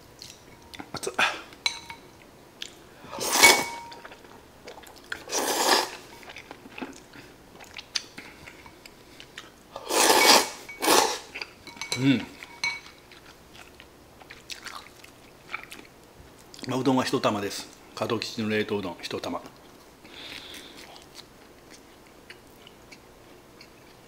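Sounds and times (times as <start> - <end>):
person slurping noodles: 3.1 - 3.7, 5.2 - 6.0, 9.8 - 11.3
chewing: 3.9 - 9.6, 12.3 - 16.7, 19.6 - 24.0.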